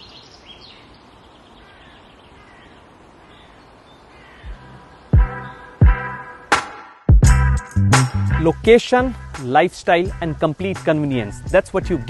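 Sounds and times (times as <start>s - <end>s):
birds calling: 0.0s - 6.6s
music: 4.5s - 12.0s.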